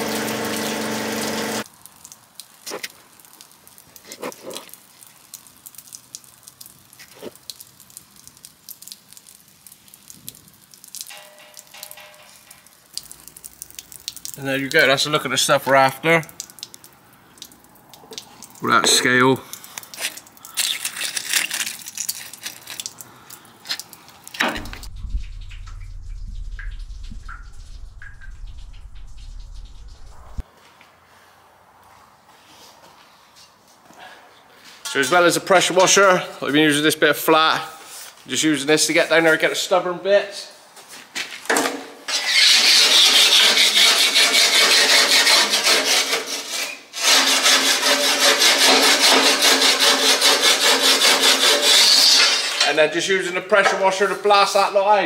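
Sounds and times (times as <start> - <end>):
water dripping and trickling: 0.0 - 30.4
steady ringing tone: 11.1 - 12.4
low steady hum: 24.5 - 30.4
steel bar scraping inside boiler: 42.1 - 52.7.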